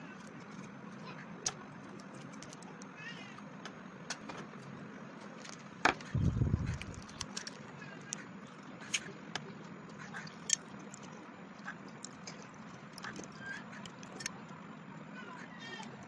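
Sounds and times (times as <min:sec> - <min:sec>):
egg cracking: 0:05.2 - 0:07.7
low rumble: 0:06.1 - 0:07.1.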